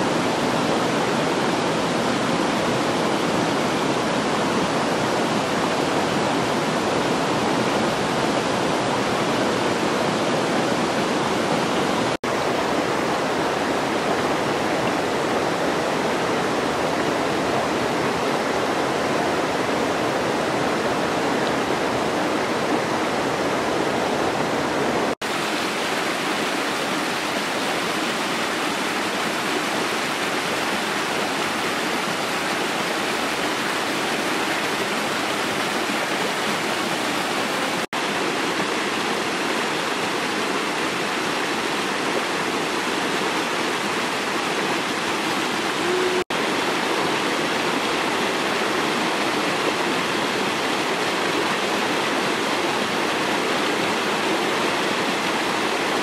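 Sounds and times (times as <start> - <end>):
stream rushing over rocks: 0.0 - 56.0.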